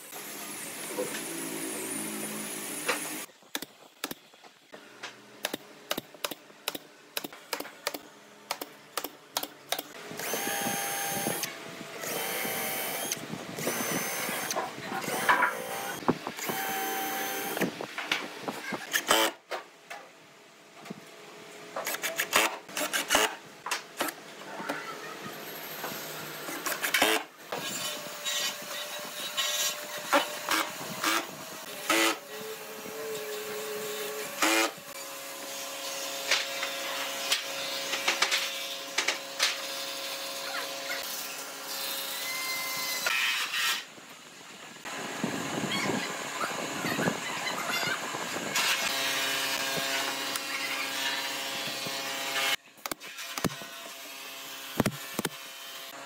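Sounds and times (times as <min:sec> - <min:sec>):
drill driving screws: 0:10.2 - 0:17.7, 0:18.8 - 0:19.4, 0:21.8 - 0:23.4, 0:26.5 - 0:28.6, 0:29.4 - 0:32.2, 0:34.4 - 0:34.8.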